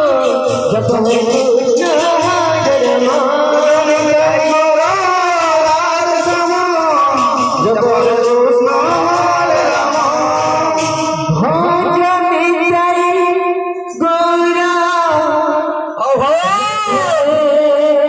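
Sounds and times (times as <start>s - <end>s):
men singing a devotional chant: 0.0s - 13.2s.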